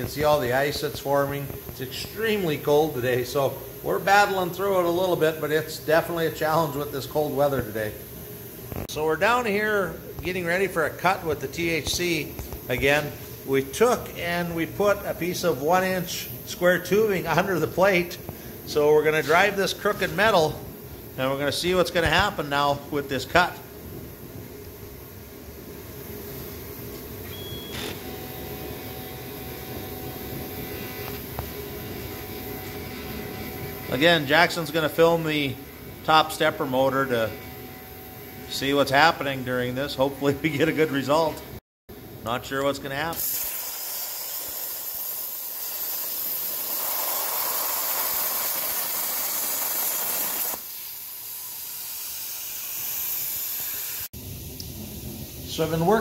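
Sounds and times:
soft hiss of air: 0:00.0 - 0:27.2, 0:42.6 - 0:56.0
steady whine: 0:00.0 - 0:41.6, 0:54.1 - 0:56.0
machinery humming: 0:25.2 - 0:41.6
plasma cutter hissing: 0:43.0 - 0:56.0.

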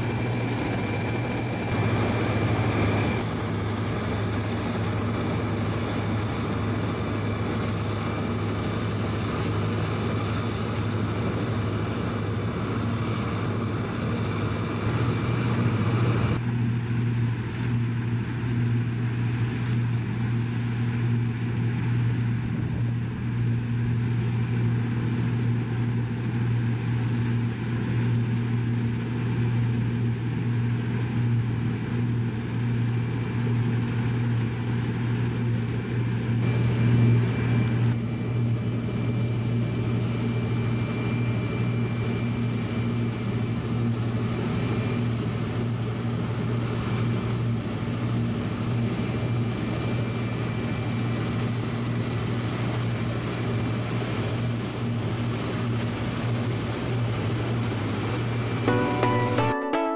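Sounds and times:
combine harvester machinery drone: 0:00.0 - 0:59.4.

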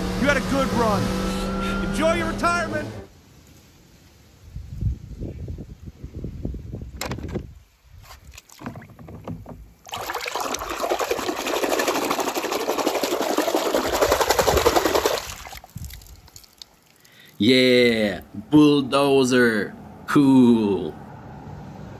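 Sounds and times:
hand splashing water in tub: 0:09.8 - 0:17.1.

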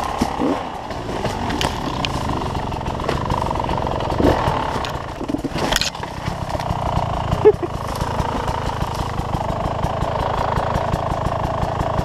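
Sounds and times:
bike knocking against rocks: 0:00.0 - 0:09.4
dirt bike engine running: 0:00.0 - 0:12.0.

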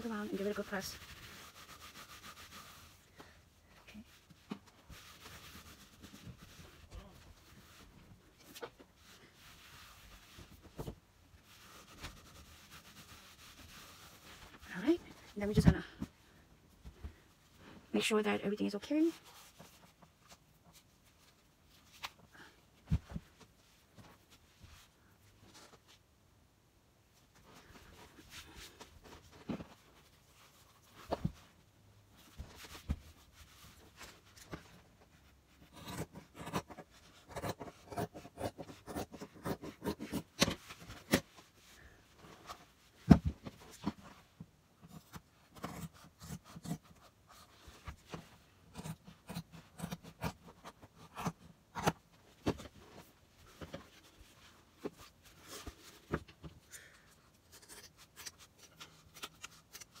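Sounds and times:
hands rubbing fabric: 0:00.1 - 0:03.3.

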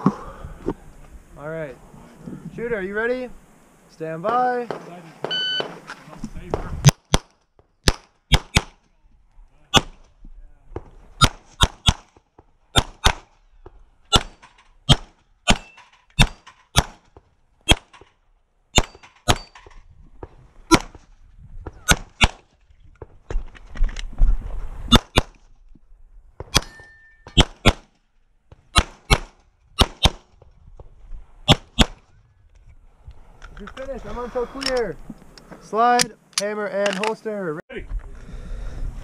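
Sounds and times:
rapid pistol fire: 0:06.8 - 0:08.8, 0:12.8 - 0:13.3, 0:14.1 - 0:17.0, 0:27.4 - 0:27.9, 0:28.7 - 0:30.3.

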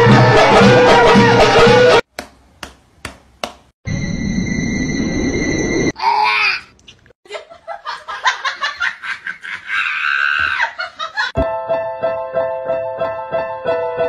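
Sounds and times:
laughter in choppy bursts: 0:07.3 - 0:10.0, 0:10.6 - 0:11.4.

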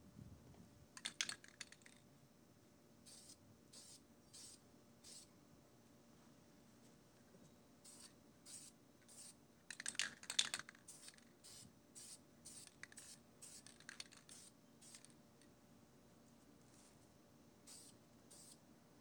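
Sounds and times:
spray can hissing: 0:03.1 - 0:05.2, 0:07.9 - 0:09.4, 0:10.8 - 0:15.1, 0:17.7 - 0:18.6.

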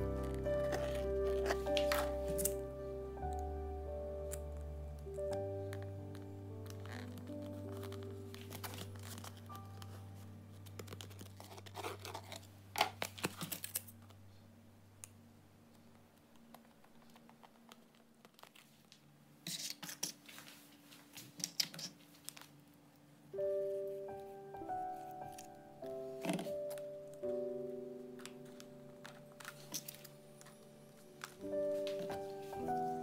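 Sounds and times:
scratching tearing and clicking: 0:00.0 - 0:02.6, 0:05.2 - 0:14.2, 0:16.3 - 0:20.2, 0:28.2 - 0:32.3
faint background music: 0:00.0 - 0:33.0.

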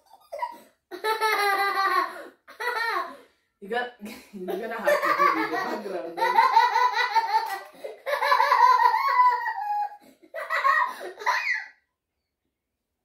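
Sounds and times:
laughter: 0:04.1 - 0:11.7.

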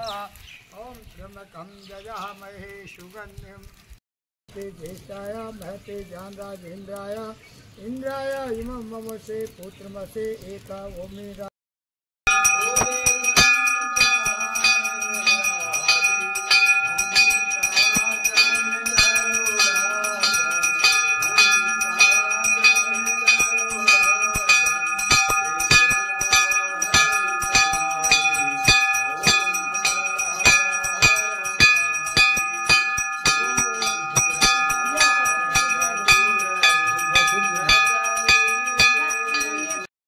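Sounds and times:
large bell ringing: 0:12.3 - 0:39.9.

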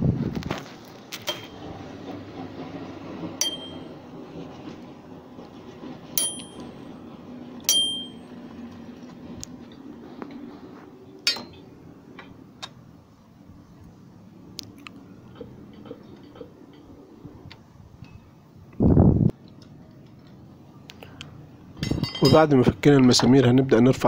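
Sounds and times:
socket wrench metallic clinks: 0:06.2 - 0:06.7, 0:07.7 - 0:08.2.

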